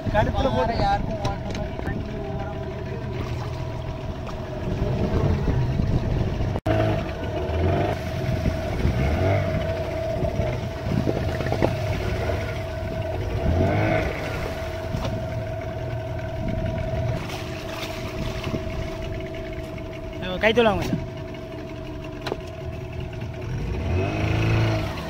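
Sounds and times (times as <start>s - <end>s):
boat motor running: 0.0s - 25.0s
water noise: 0.0s - 25.0s
wind noise: 3.2s - 6.6s, 7.8s - 19.4s.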